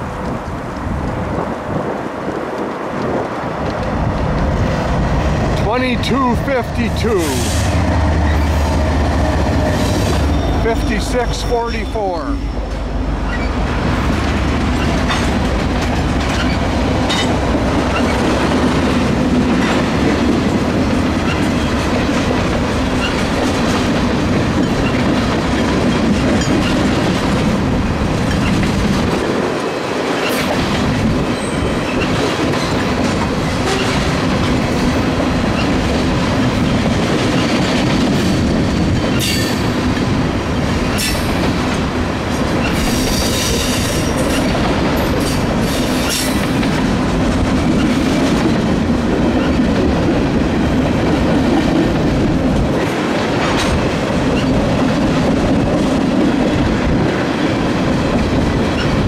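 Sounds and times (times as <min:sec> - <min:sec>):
train wheels rumbling on rail: 0:00.0 - 0:59.0
wheels clicking over rail joints: 0:12.6 - 0:59.0.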